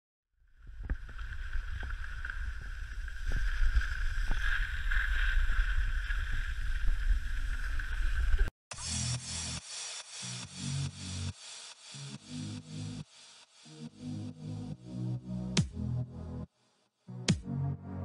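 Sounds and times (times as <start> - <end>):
skis sliding over snow: 0.7 - 8.5.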